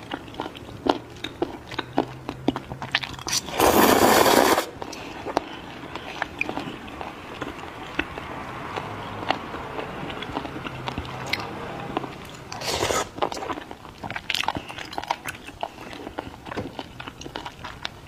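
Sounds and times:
wet sticky chewing: 0.0 - 18.0
loud slurp: 3.3 - 4.8, 12.5 - 13.5.

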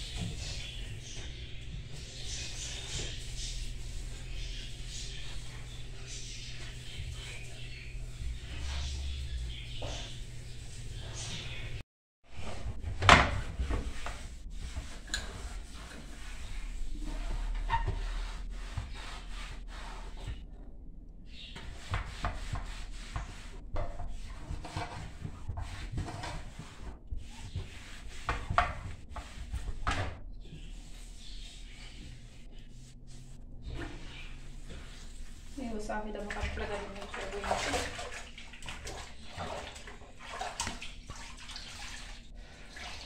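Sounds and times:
cloth wiping window: 0.0 - 11.8, 13.4 - 20.4, 21.5 - 37.4.

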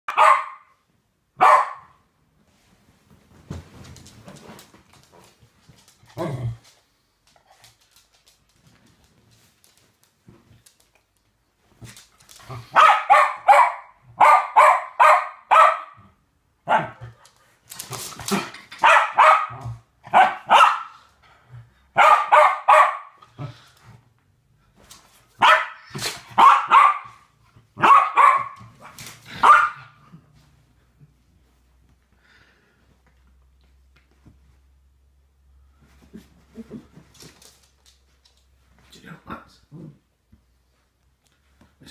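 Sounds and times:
dog barking: 0.1 - 0.8, 1.4 - 2.0, 12.7 - 16.0, 16.6 - 17.0, 18.8 - 21.0, 22.0 - 23.2, 25.4 - 28.6, 29.4 - 30.0.

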